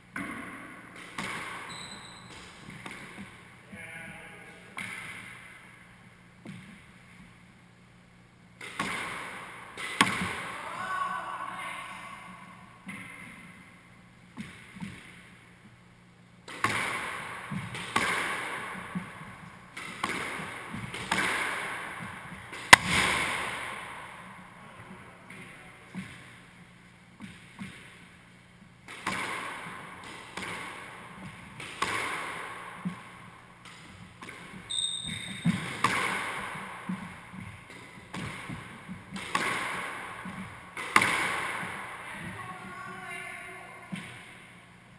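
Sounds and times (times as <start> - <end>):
squash ball hitting rackets and walls: 0.0 - 3.9, 4.7 - 7.0, 8.5 - 10.6, 12.8 - 13.8, 16.4 - 28.2, 28.8 - 42.6, 43.8 - 44.5.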